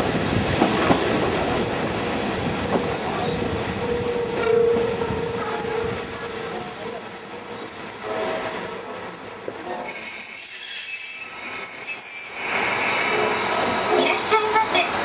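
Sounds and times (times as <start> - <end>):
railcar running noise: 0.0 - 15.0
train brake squeal: 7.3 - 8.6, 9.2 - 15.0.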